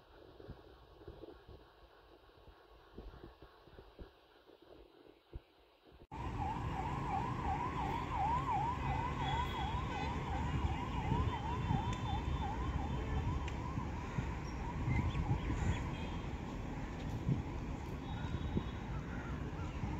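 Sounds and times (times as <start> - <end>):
warbling siren: 6.1 - 16.0.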